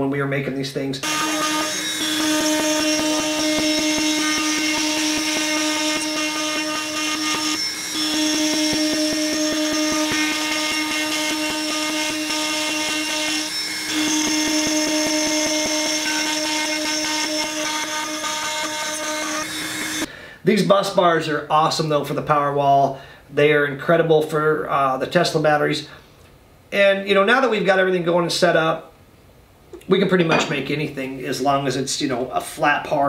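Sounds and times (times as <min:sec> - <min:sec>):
cnc machine milling whine: 0:01.0 - 0:20.1.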